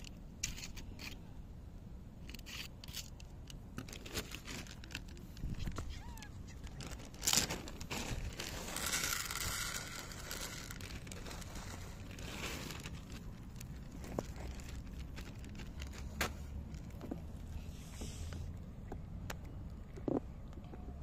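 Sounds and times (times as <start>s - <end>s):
plastic bag crinkling: 3.8s - 17.1s.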